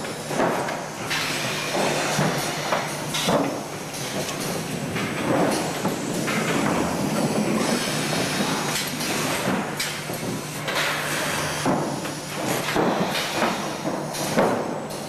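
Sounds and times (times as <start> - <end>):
motor and roller hum: 0.0 - 13.1
pneumatic cylinder knocks: 0.3 - 15.0
pneumatic hisses: 1.1 - 4.8, 5.5 - 10.0.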